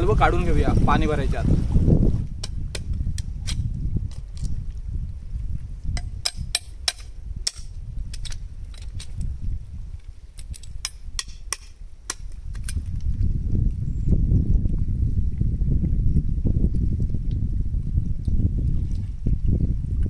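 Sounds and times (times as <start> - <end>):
low wind rumble: 0.0 - 20.0
metal blade chipping at rock: 2.4 - 4.5, 6.0 - 9.2, 10.4 - 12.8.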